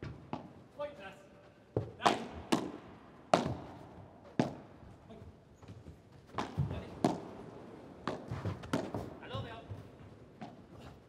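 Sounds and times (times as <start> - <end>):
ball struck by rackets: 2.0 - 4.7, 6.3 - 9.1.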